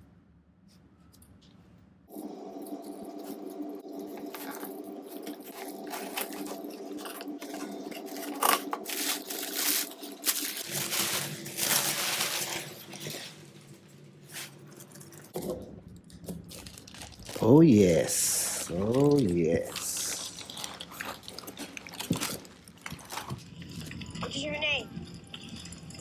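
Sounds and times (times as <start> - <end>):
packing paper crinkling: 2.8 - 15.4, 16.2 - 23.9.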